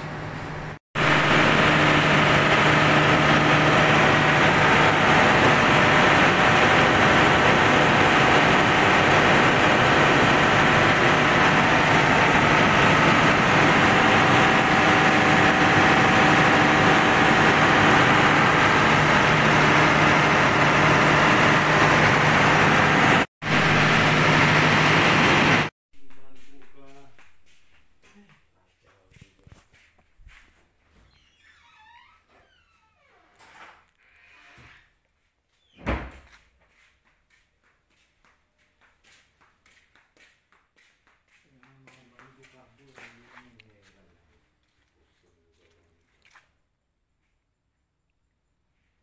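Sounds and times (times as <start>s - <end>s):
engine running with low hum: 0.0s - 25.7s.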